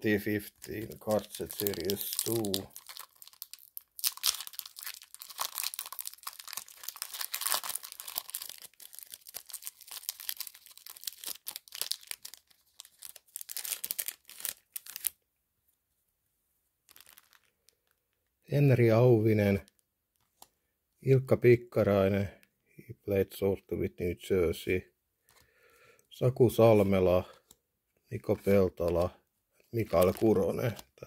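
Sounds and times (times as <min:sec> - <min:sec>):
wrapper tearing and crinkling: 0:00.5 - 0:15.2, 0:16.9 - 0:17.8, 0:29.9 - 0:30.8.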